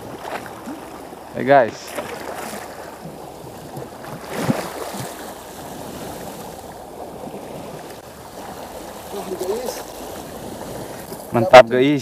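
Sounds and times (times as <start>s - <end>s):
water lapping against rocks: 0.0s - 11.4s
wind on microphone: 2.6s - 11.5s.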